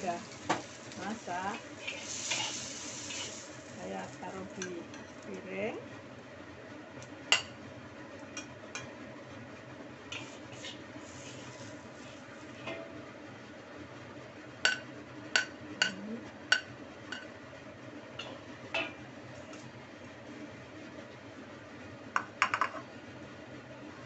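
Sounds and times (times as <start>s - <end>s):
faint steady hum: 0.0s - 24.0s
metal spatula scraping a wok: 1.7s - 3.6s, 10.1s - 12.8s.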